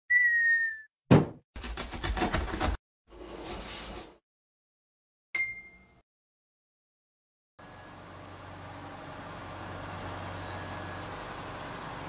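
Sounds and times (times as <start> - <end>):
sharp cartoon thump: 1.1 - 1.4.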